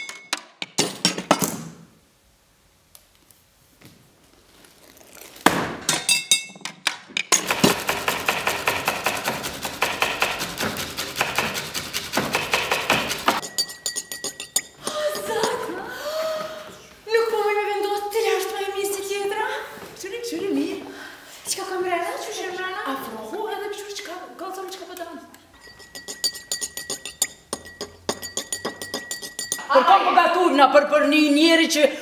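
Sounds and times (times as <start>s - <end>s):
glass and kitchenware clinking: 5.9s - 7.9s, 12.3s - 15.7s, 25.6s - 29.7s
knife chopping on cutting board: 7.4s - 13.4s.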